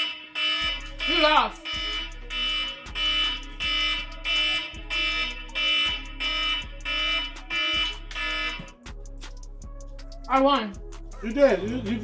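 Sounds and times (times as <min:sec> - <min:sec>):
electronic timer alarm beeping: 0:00.0 - 0:08.8.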